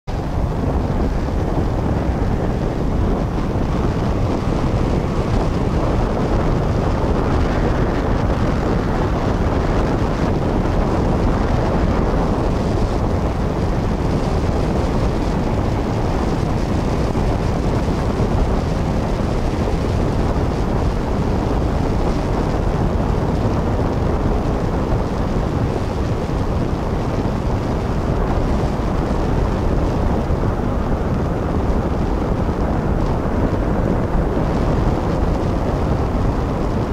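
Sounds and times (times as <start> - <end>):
speedboat engine rumble: 0.0 - 36.9
wind buffeting microphone: 0.1 - 36.9.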